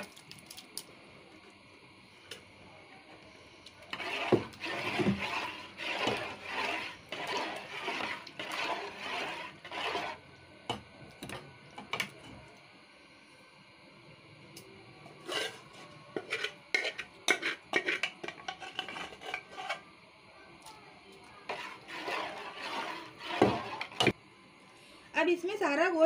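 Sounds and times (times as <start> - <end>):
spoon stirring thick food in pot: 3.2 - 12.4, 15.2 - 19.9, 21.3 - 24.2.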